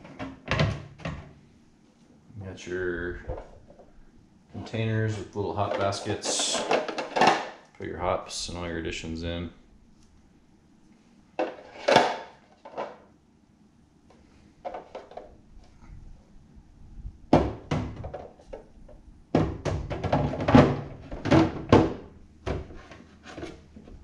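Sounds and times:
plastic parts knocking and clicking: 0:05.6 - 0:07.6, 0:14.6 - 0:15.3, 0:17.3 - 0:23.5.

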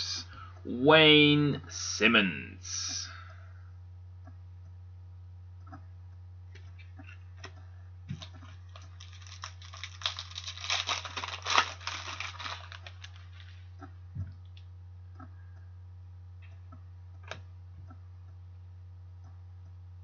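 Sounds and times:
cards rustling and clicking: 0:07.4 - 0:13.6.

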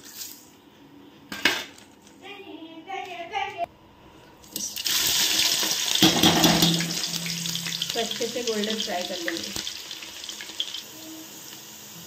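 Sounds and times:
onions sizzling in hot oil: 0:04.6 - 0:12.0.

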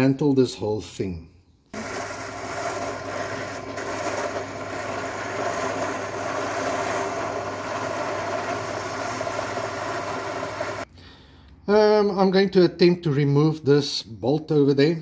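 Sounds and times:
wire brush scrubbing metal: 0:01.8 - 0:10.8
drill press motor hum: 0:01.8 - 0:10.9.

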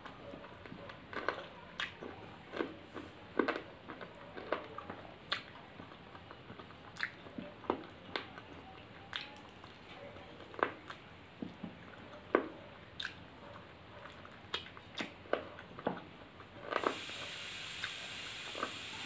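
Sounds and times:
person chewing and lip-smacking: 0:00.5 - 0:09.8, 0:12.3 - 0:13.2, 0:14.0 - 0:15.8.

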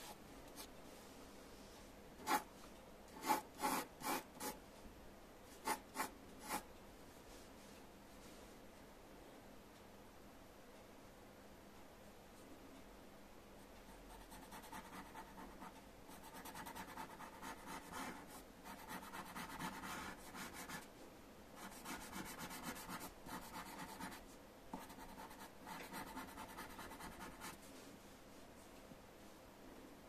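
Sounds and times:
pencil sketching on paper: 0:02.2 - 0:02.5, 0:03.2 - 0:04.6, 0:14.2 - 0:20.8, 0:21.6 - 0:24.2, 0:24.8 - 0:27.6.

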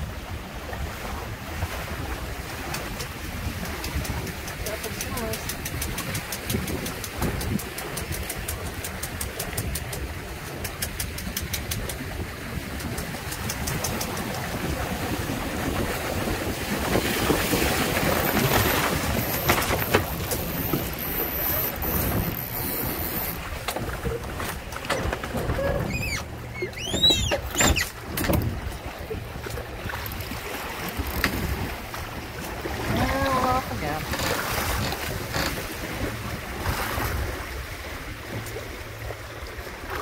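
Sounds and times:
wind and water rushing: 0:00.0 - 0:40.0
short high squeaks: 0:18.2 - 0:23.4, 0:24.9 - 0:28.0.

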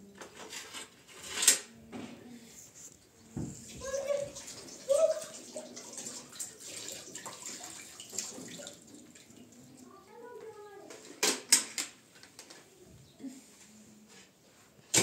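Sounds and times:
water running and splashing: 0:03.7 - 0:09.9.

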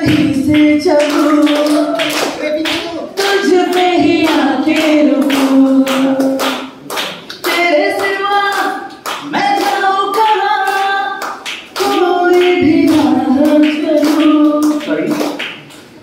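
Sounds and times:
person singing into a microphone: 0:00.0 - 0:02.1
people clapping along: 0:00.0 - 0:16.0.

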